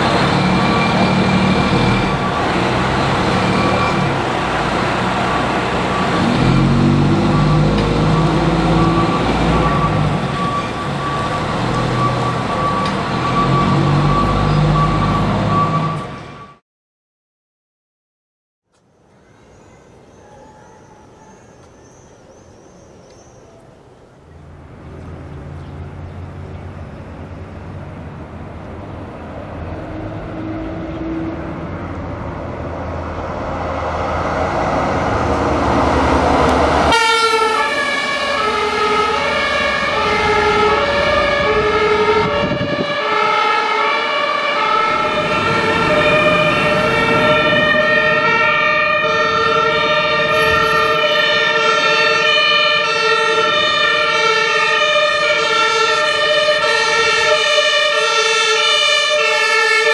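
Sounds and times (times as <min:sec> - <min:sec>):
fire truck engine pulling away: 0:00.0 - 0:16.6, 0:24.2 - 0:59.9
road noise: 0:00.0 - 0:16.6, 0:18.6 - 0:59.9
two-tone siren: 0:00.0 - 0:16.6, 0:20.2 - 0:22.0, 0:35.8 - 0:59.9.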